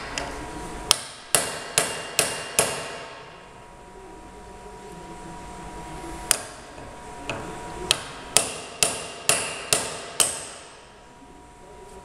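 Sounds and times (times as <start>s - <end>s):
hammer striking steel wedges: 0.9s - 3.2s, 7.9s - 10.8s.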